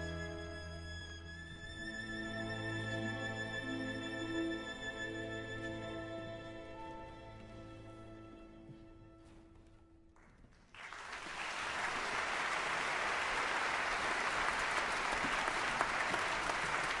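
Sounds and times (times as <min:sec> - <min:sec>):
audience applause: 0:10.7 - 0:17.0.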